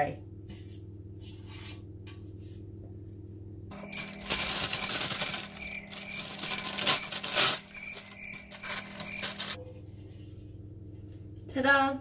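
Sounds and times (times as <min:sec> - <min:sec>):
baking paper crinkling: 0:03.7 - 0:09.6.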